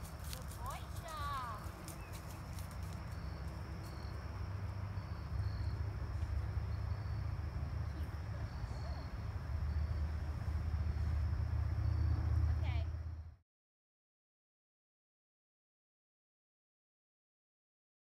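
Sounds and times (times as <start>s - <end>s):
crickets chirping: 0.0s - 13.4s
low rumble: 4.0s - 13.4s.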